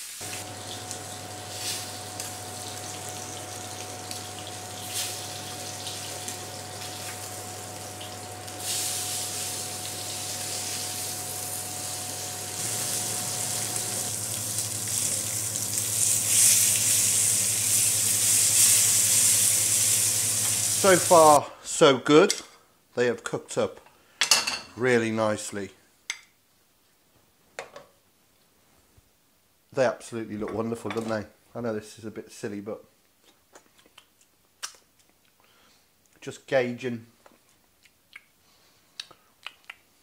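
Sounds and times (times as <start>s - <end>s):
meat sizzling in a frying pan: 0.0s - 21.4s.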